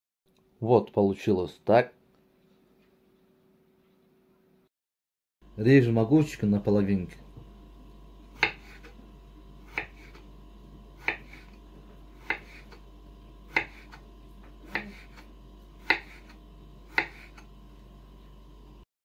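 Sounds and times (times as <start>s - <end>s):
faint steady hum: 5.5s - 18.9s
knife tapping cutting board: 15.8s - 16.2s, 16.9s - 17.4s.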